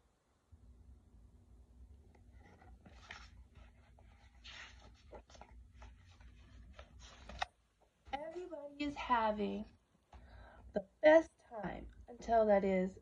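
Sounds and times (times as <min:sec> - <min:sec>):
faint low steady hum: 0:00.0 - 0:13.0
book pages rustling: 0:02.1 - 0:08.8.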